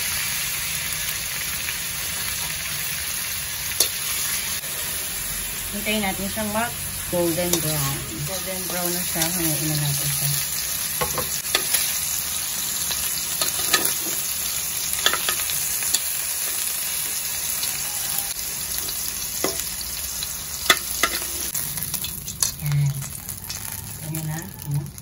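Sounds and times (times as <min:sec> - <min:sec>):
meat sizzling in fat: 0:00.0 - 0:25.0
metal tongs clinking on wok: 0:07.3 - 0:10.3, 0:11.0 - 0:11.9, 0:13.4 - 0:14.2, 0:14.9 - 0:16.1, 0:18.8 - 0:19.7, 0:20.6 - 0:23.6.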